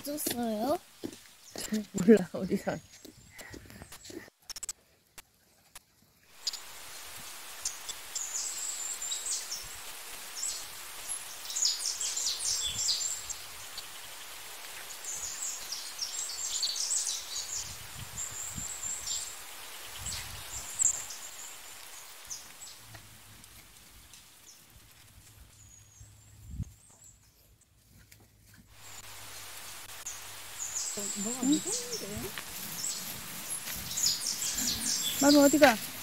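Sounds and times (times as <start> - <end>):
small birds chirping: 0.0 - 36.0
leafy plants rustling: 5.9 - 36.0
soft footsteps: 32.0 - 36.0.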